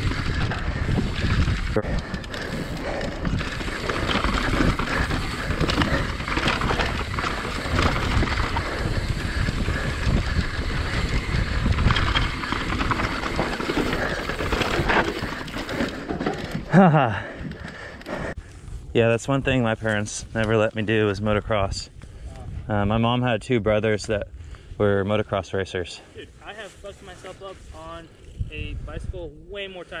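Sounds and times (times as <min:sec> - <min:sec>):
bike rattling and knocking: 0:00.0 - 0:18.3
bike tyres rumbling over rocks: 0:00.0 - 0:18.3
wind buffeting microphone: 0:00.0 - 0:24.9, 0:27.0 - 0:29.6.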